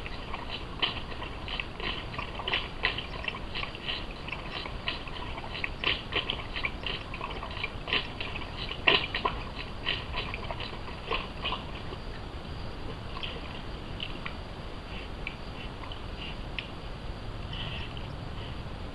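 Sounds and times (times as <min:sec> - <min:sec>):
otter wet clicks and smacks: 0:00.0 - 0:11.9.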